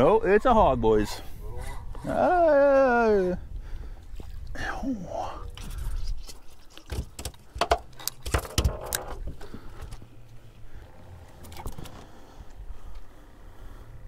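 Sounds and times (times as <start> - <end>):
knocks and rattles: 6.9 - 10.0
low steady background: 7.4 - 14.0.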